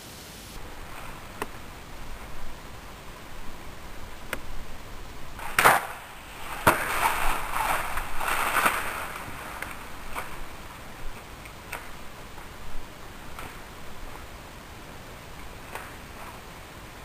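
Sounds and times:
deer rustling through dry grass: 0.6s - 17.0s
arrow striking crack: 5.4s - 10.3s.

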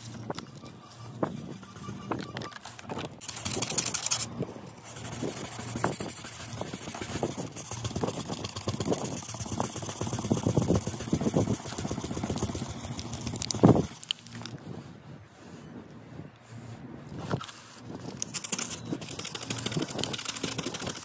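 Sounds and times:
sandpaper rubbing on car paint: 3.3s - 14.0s, 17.6s - 21.0s.

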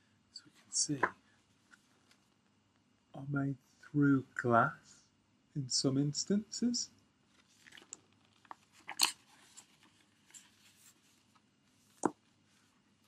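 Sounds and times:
book pages rustling: 7.3s - 12.7s.

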